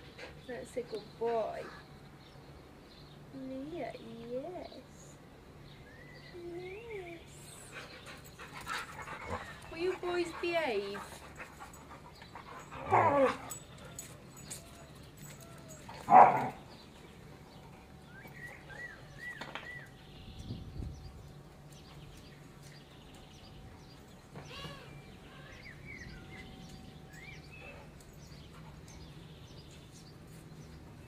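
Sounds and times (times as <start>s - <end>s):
birds chirping: 0.0s - 31.0s
dog barking: 16.1s - 16.6s.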